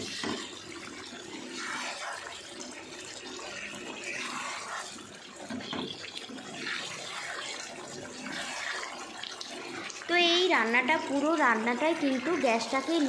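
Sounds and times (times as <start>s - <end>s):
wet sloshing and scraping: 0.0s - 10.0s
spatula stirring in gravy: 0.0s - 13.0s.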